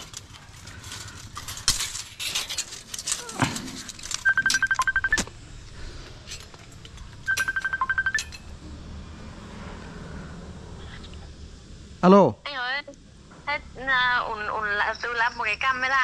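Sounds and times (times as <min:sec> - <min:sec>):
phone ringing rapid high beeps: 0:04.2 - 0:05.2, 0:07.3 - 0:08.3.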